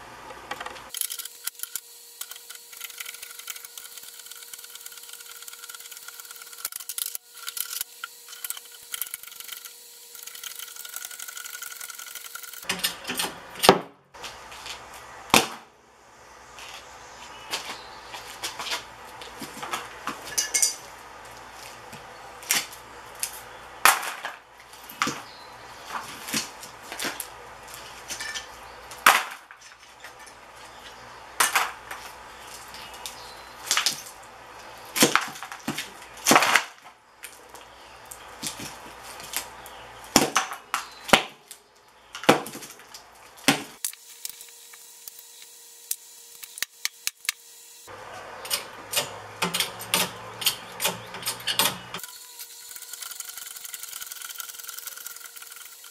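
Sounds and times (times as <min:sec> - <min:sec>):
debris scraping on concrete: 0:17.5 - 0:39.7.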